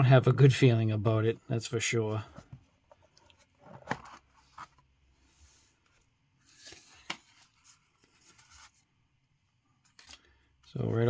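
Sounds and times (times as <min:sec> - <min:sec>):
paper card rustling: 0:05.5 - 0:08.9, 0:09.7 - 0:10.6.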